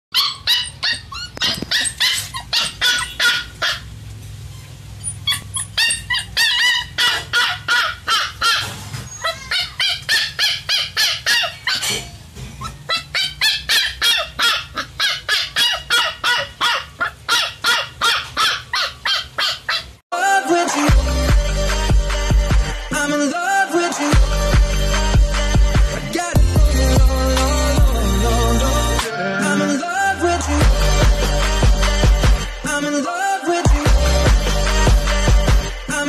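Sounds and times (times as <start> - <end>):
puppy yapping: 0.1 - 3.9, 4.5 - 20.0.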